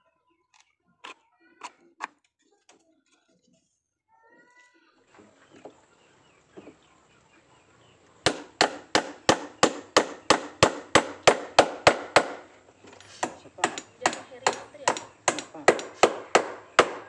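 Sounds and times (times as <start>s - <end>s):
hammer striking wood: 8.2s - 12.6s, 13.2s - 17.0s.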